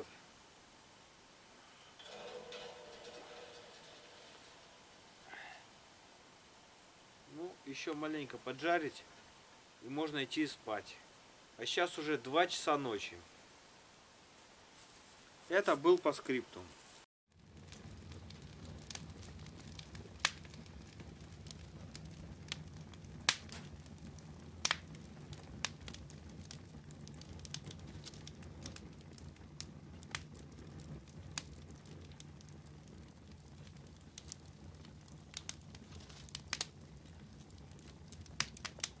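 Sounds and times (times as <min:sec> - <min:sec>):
campfire crackling and popping: 0:02.0 - 0:05.6, 0:17.3 - 0:39.0.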